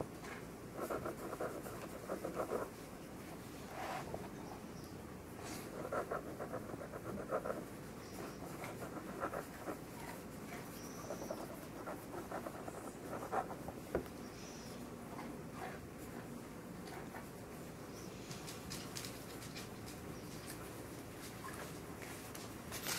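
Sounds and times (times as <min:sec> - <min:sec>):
pencils scratching on paper: 0:00.8 - 0:02.8, 0:05.5 - 0:14.0.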